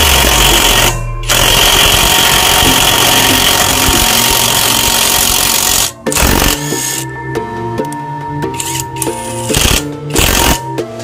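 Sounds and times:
impact wrench hammering: 0.0s - 7.0s.

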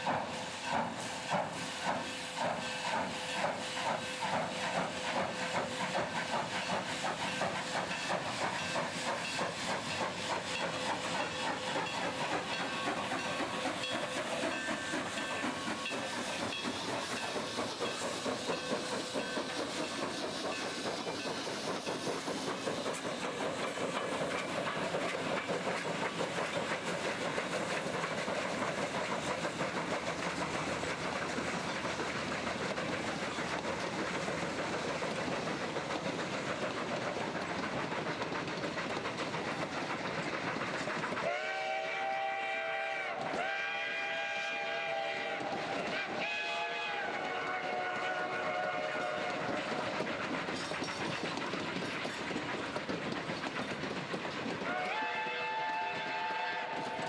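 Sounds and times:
rail noise: 0.0s - 57.0s
steam locomotive exhaust chuffs: 0.0s - 57.0s
train cars rolling: 0.1s - 57.0s
steam whistle blowing: 41.2s - 49.7s, 54.7s - 57.0s.

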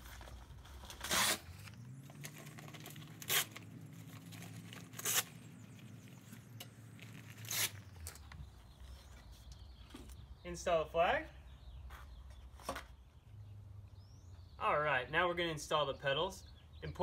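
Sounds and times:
velcro straps ripping: 0.9s - 5.4s, 7.0s - 8.2s.

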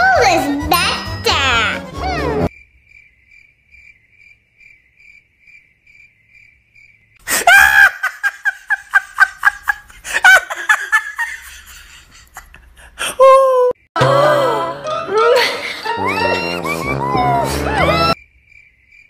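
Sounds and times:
faint cricket chirping: 2.5s - 7.2s, 18.2s - 19.0s
high-pitched laughter: 7.3s - 18.2s
held vocal note: 14.0s - 18.2s.

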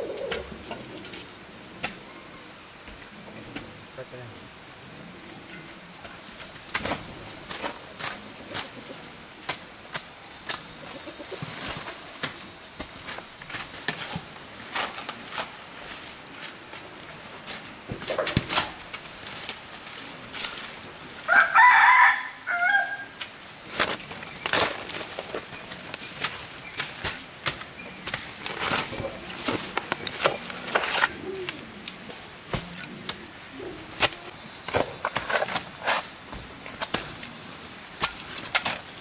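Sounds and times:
rooster crowing: 21.2s - 23.2s.

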